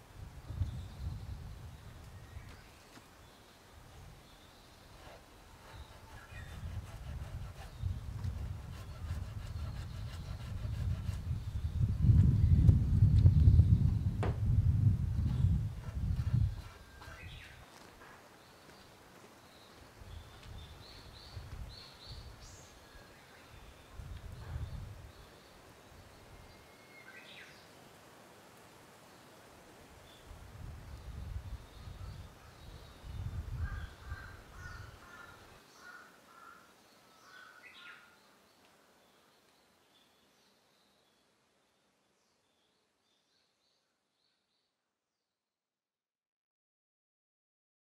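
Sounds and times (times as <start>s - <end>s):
soft low thumps: 11.9s - 16.4s.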